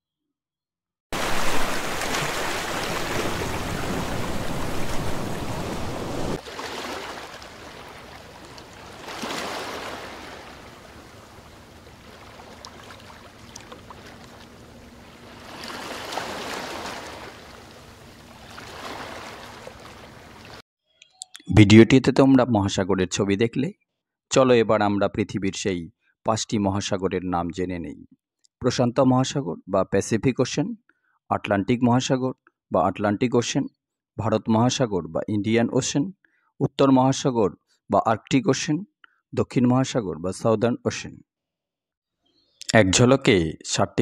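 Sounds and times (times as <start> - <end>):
sea waves washing onto beach: 1.2 - 20.6.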